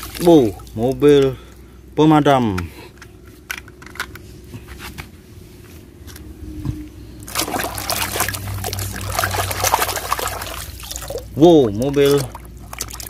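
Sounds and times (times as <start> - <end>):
water sloshing and splashing: 0.0 - 1.6, 7.2 - 13.0.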